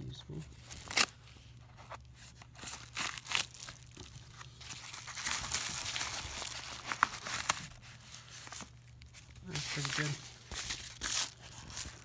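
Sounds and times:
paper mailer tearing and crinkling: 0.6s - 1.2s, 2.5s - 12.0s.

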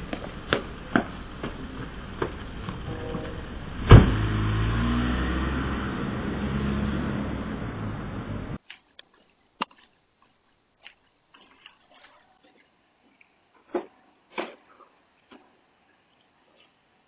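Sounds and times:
car engine accelerating: 0.0s - 8.6s.

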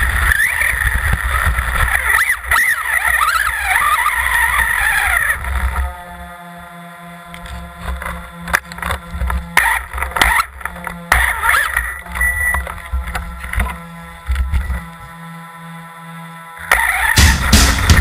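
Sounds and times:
electric toy car motor whining: 0.0s - 18.0s
chassis knocks: 17.1s - 18.0s.

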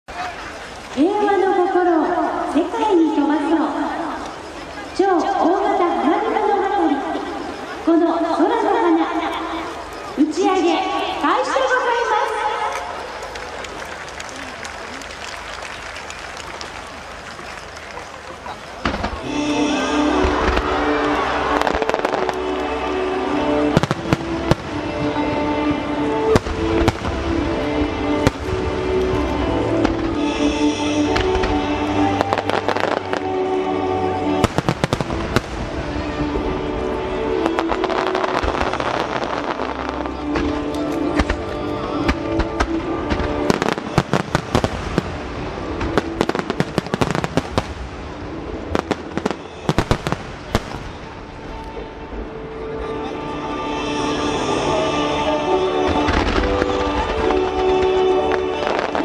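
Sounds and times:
music with long held notes: 0.6s - 59.0s
fireworks banging: 16.2s - 33.4s, 34.2s - 51.6s, 55.8s - 59.0s.

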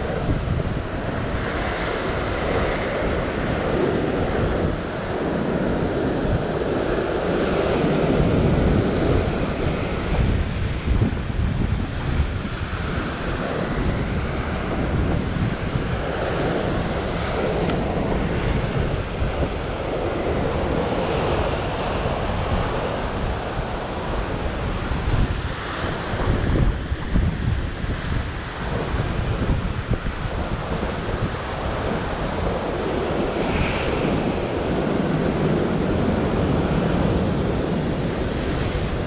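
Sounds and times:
wind buffeting microphone: 0.0s - 39.0s
surf breaking over rocks: 30.2s - 39.0s.

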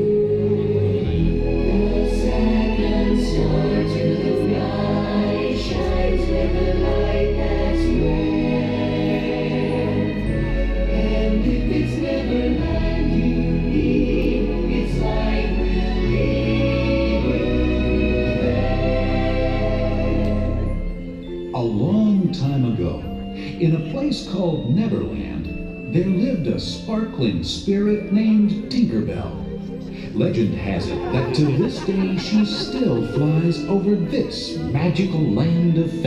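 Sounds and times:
choir singing held chords: 0.0s - 21.4s, 29.8s - 36.0s.

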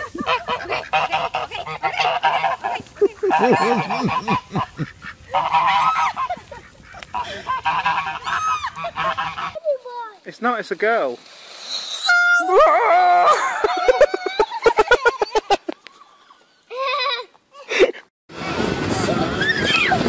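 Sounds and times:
geese honking: 0.0s - 9.6s, 12.0s - 12.5s.

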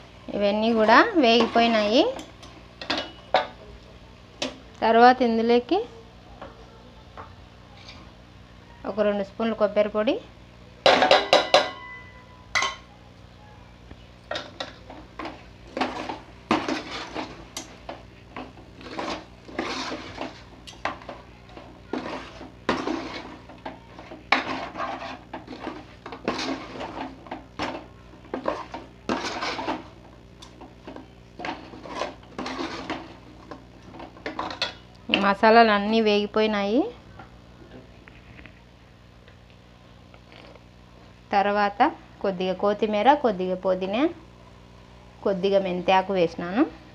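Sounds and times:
metal spoon scraping pot: 18.4s - 21.1s, 21.9s - 29.9s, 31.4s - 33.2s.

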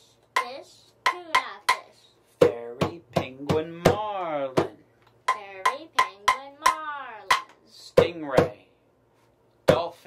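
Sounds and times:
child chanting: 0.4s - 2.2s, 5.3s - 7.8s
man chanting: 2.4s - 4.8s.

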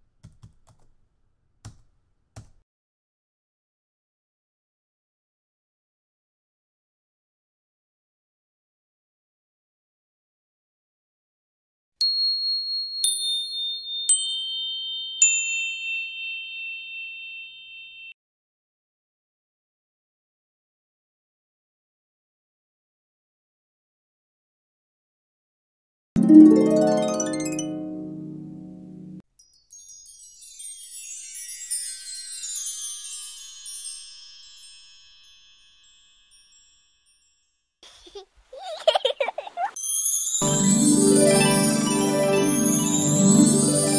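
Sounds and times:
bell-like chime notes: 12.0s - 18.2s, 39.8s - 43.9s
descending chime tones: 26.2s - 37.3s, 39.8s - 43.9s.

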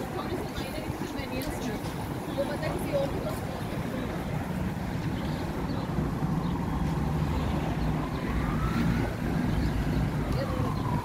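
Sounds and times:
road traffic rumble: 0.0s - 11.0s
distant siren wailing: 5.8s - 11.0s.

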